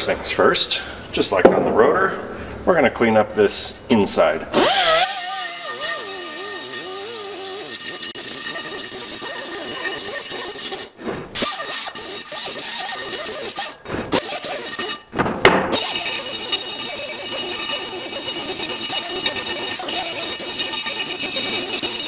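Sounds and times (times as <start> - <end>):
air grinder grinding metal: 4.5 - 15.1, 15.7 - 22.0.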